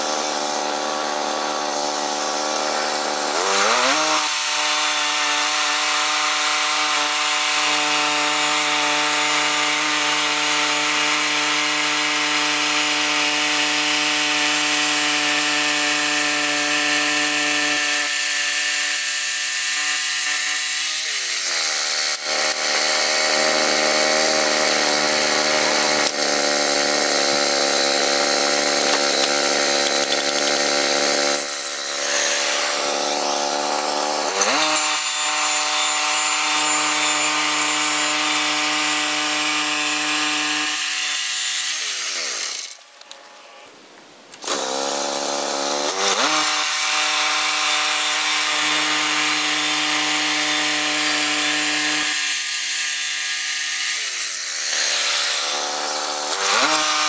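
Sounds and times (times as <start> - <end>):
band blade sawing wood: 0.0 - 42.9, 44.4 - 57.0
sawmill engine running: 20.1 - 40.6.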